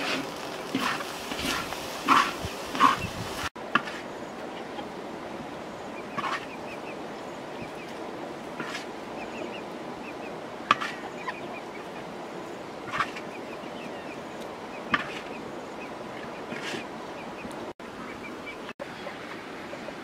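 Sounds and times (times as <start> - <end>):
spatula scraping rice in a wok: 0.0 - 3.0
chickens calling: 0.0 - 5.1, 5.8 - 20.0.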